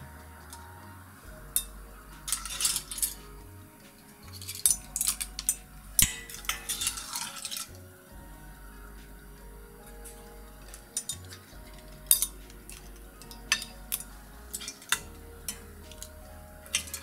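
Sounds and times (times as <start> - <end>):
utensils clinking on pan and bowl: 1.5 - 7.9, 9.9 - 17.0.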